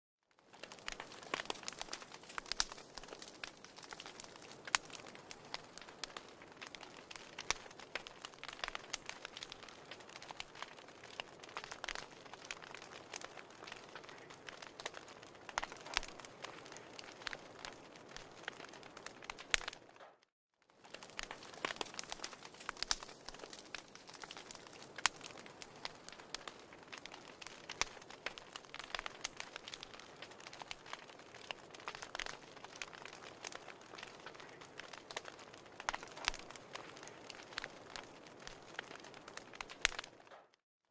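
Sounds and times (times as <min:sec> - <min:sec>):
wood fire crackling: 0:00.3 - 0:40.6.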